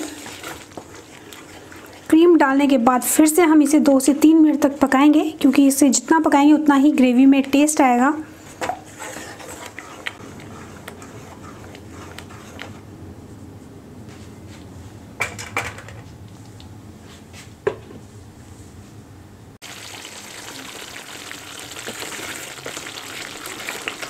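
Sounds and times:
gravy bubbling and sizzling in a pan: 0:00.0 - 0:02.7, 0:19.6 - 0:24.0.

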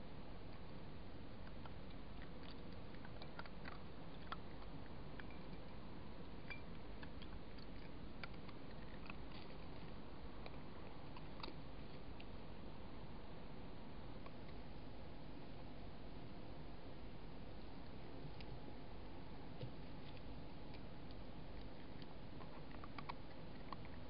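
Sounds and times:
animal chewing clicks and crunches: 0:01.3 - 0:12.4, 0:19.4 - 0:24.0.

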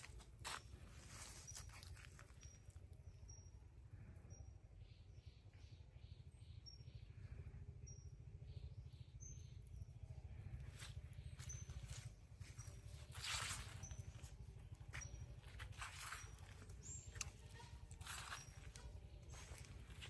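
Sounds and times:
low steady rumble: 0:00.0 - 0:20.0
high bird chirps: 0:10.8 - 0:20.0.

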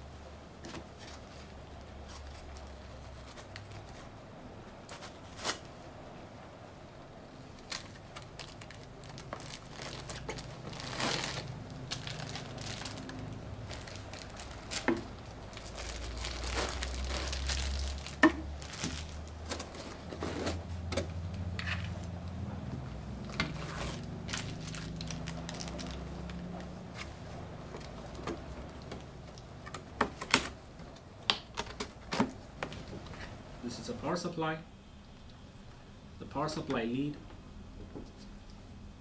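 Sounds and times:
plastic bags crinkling: 0:07.5 - 0:22.1, 0:23.2 - 0:33.2.

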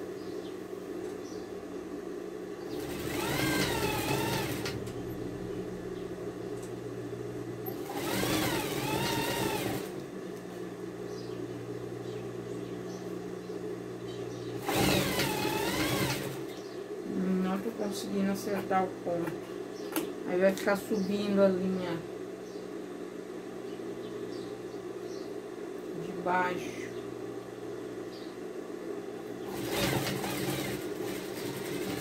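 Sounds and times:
motor hum: 0:00.0 - 0:32.0
sewing machine stitching: 0:02.7 - 0:04.9, 0:07.8 - 0:10.0, 0:14.6 - 0:16.5, 0:29.5 - 0:32.0.

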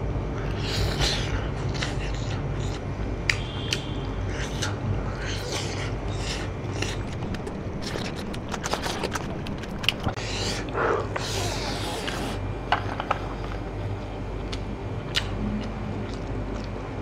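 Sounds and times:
steady low hum: 0:00.0 - 0:17.0
chewing: 0:00.4 - 0:11.4, 0:14.0 - 0:17.0
mouth clicks: 0:02.6 - 0:04.8.

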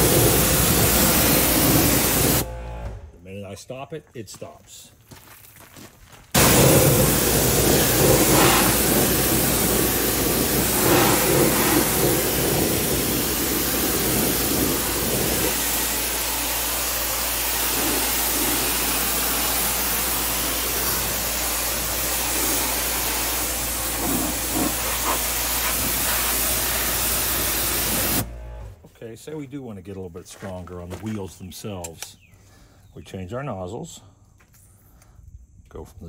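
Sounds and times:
pressure washer spray hissing: 0:00.0 - 0:02.5, 0:06.4 - 0:28.3
low hum: 0:02.3 - 0:03.3.

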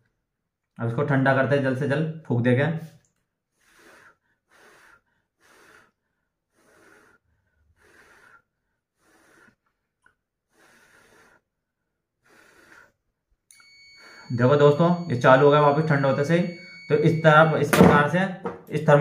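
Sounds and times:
short puffs of breath: 0:02.8 - 0:09.8, 0:10.5 - 0:13.0.

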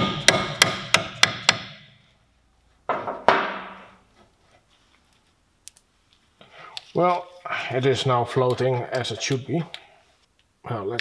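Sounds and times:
hammer striking metal: 0:00.0 - 0:01.9, 0:02.9 - 0:03.9.

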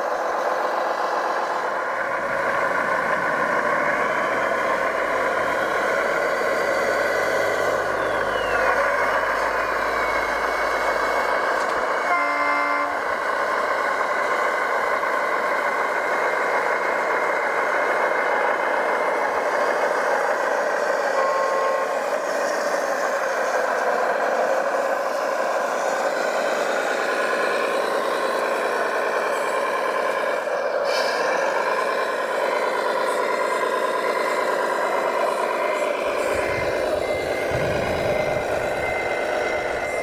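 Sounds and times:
model vehicles whirring: 0:00.0 - 0:40.0
short horn blast: 0:11.7 - 0:13.2.

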